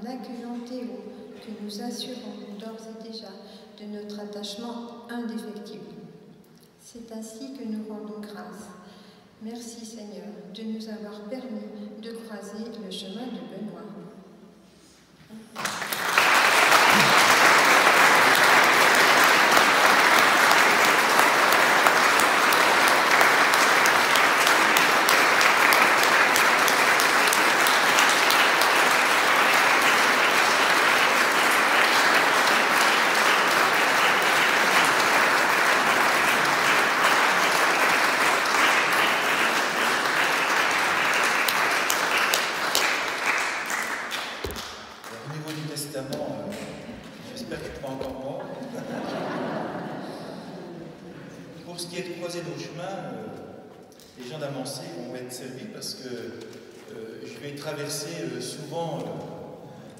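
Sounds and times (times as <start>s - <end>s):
crowd applauding: 15.6s - 48.1s.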